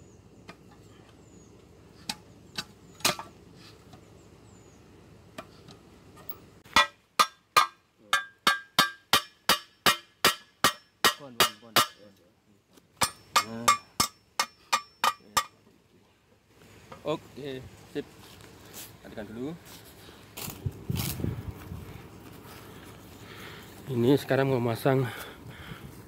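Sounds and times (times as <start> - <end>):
hatchet striking metal stake: 2.0 - 3.4, 6.2 - 12.1, 13.0 - 15.6.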